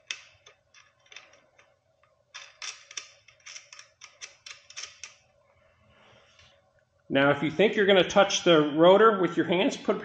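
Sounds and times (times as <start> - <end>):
metallic clicking of bolt threading: 0.0 - 5.2.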